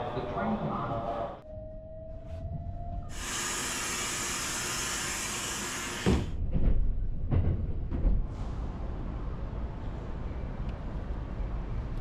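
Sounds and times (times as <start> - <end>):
steady outdoor noise: 2.3 - 12.0
compressed air hissing: 3.1 - 6.4.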